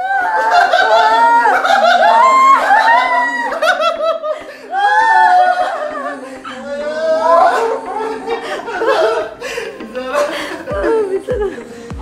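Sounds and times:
high voice crying: 0:04.7 - 0:11.7
person laughing: 0:05.5 - 0:12.0.

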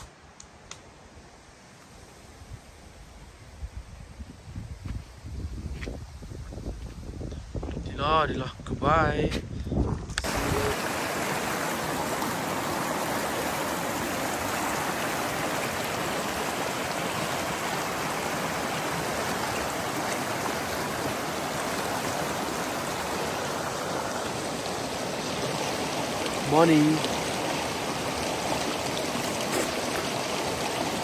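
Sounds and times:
stream water rushing: 0:10.2 - 0:31.0.

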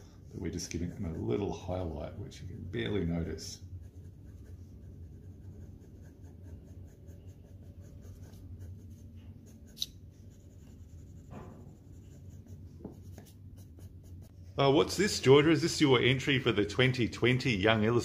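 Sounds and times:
faint low hum: 0:00.0 - 0:18.0
pencil scratching on paper: 0:00.5 - 0:01.8, 0:03.5 - 0:14.4.

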